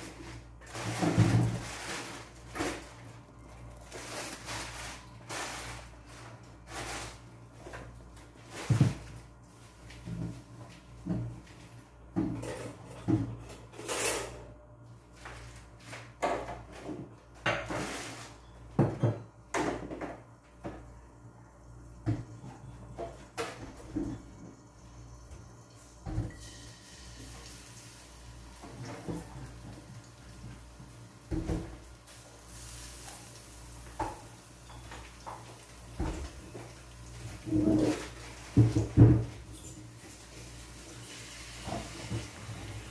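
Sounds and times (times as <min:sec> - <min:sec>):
pots and utensils clinking: 0:33.9 - 0:36.5.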